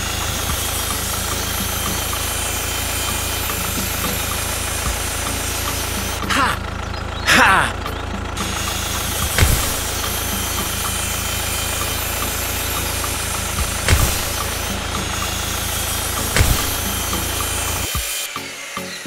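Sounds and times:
tractor engine drone: 0.0 - 19.0
short knocks: 9.2 - 11.0, 13.5 - 15.3, 16.2 - 17.2.

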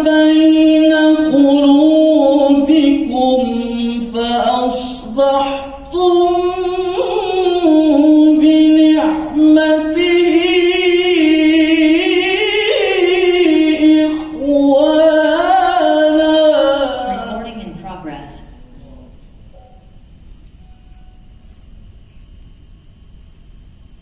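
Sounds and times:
man reciting melodically: 0.0 - 17.8.

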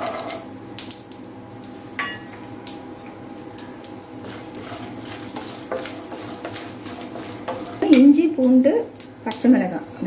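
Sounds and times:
oil sizzling in frying pan: 0.0 - 1.3, 2.3 - 10.0
spatula stirring and scraping: 4.2 - 8.6.

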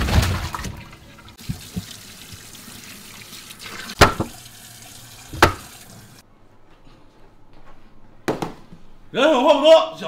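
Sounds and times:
tap water splashing into sink: 0.0 - 6.1.

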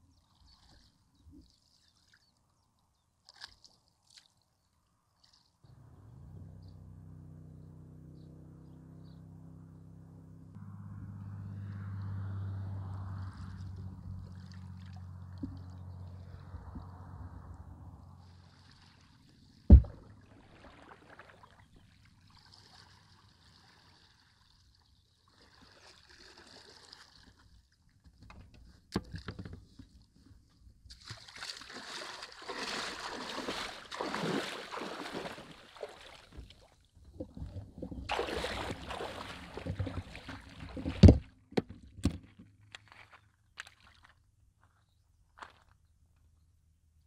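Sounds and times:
paddle splashing water: 18.2 - 28.0, 30.9 - 41.3
paddle knocking on canoe: 19.7 - 20.0.

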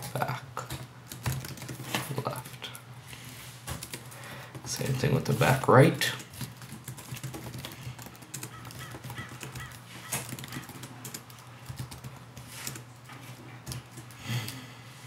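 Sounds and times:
keyboard typing: 0.6 - 2.5, 6.2 - 14.2.

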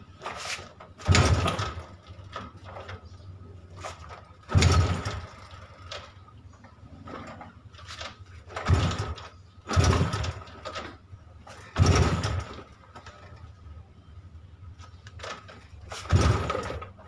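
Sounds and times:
engine kicked over without firing: 0.6 - 3.1, 3.8 - 6.2, 7.0 - 13.4, 15.2 - 17.0.

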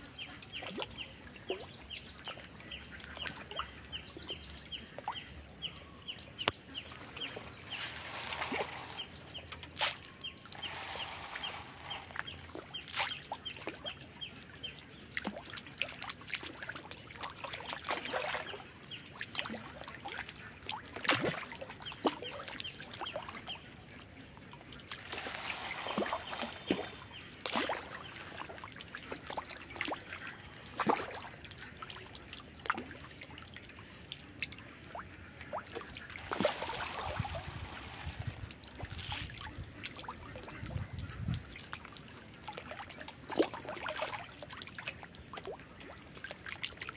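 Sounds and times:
fish splashing at the surface: 6.9 - 14.0, 17.6 - 18.5, 21.0 - 22.5, 24.8 - 33.0, 34.4 - 40.8, 41.9 - 46.9.

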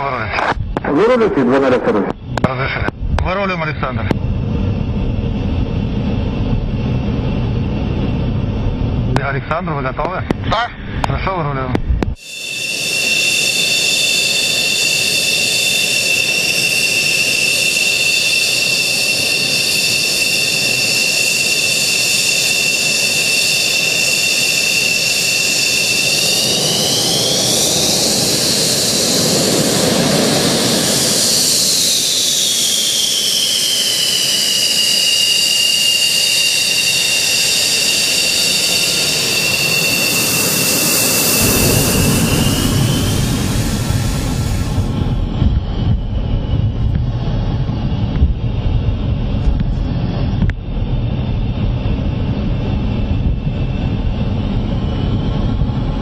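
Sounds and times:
jet engines whining: 0.0 - 56.0
jet exhaust rush: 0.0 - 56.0.

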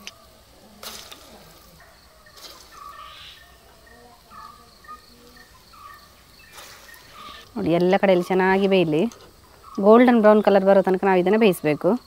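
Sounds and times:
faint bird chirps: 0.0 - 12.0
low frying hiss: 0.0 - 12.0.

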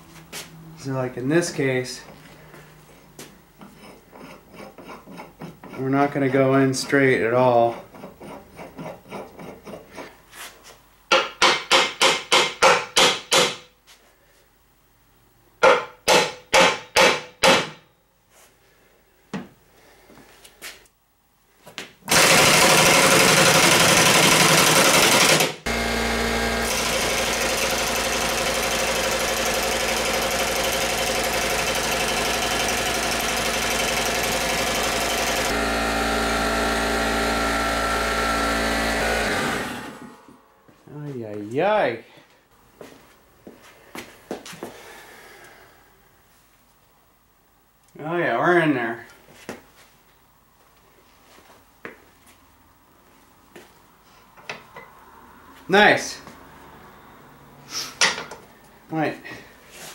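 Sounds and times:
pneumatic impact wrench hammering: 15.6 - 17.8, 22.1 - 40.2.

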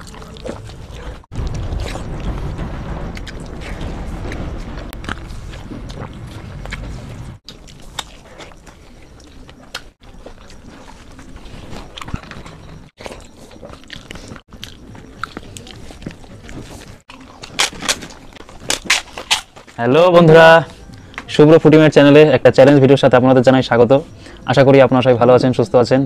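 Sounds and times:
low rumble: 0.0 - 9.3
people chewing crunchy food: 0.0 - 19.8.

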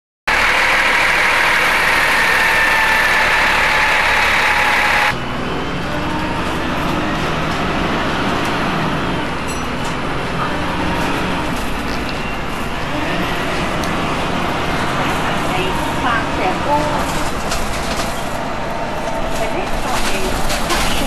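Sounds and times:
bus engine hiss and whine: 0.3 - 21.0
low engine hum: 0.3 - 21.0.

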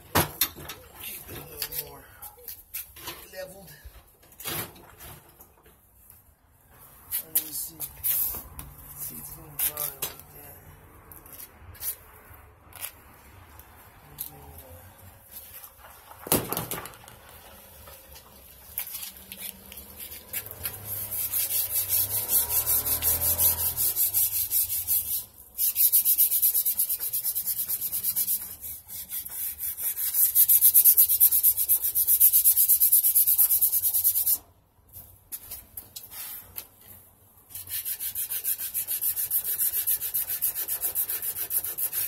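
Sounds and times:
hand sanding steel tubes: 7.0 - 10.3, 18.8 - 34.4, 37.5 - 42.0.

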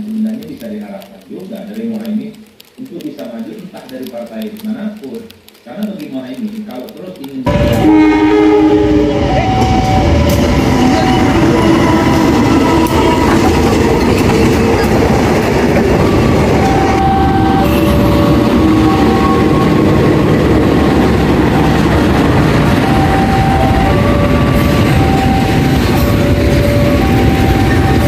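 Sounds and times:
locomotives rumbling past: 7.5 - 28.0.

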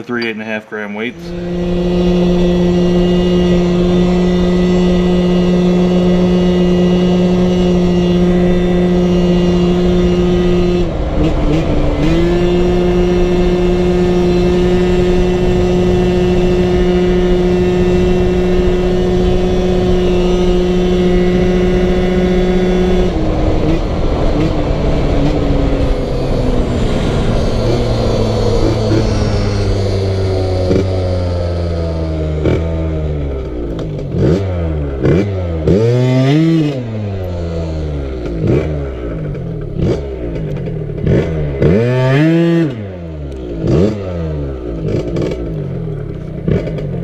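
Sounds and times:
scooter engine revving high: 1.1 - 47.0
wind on microphone: 7.9 - 33.6.

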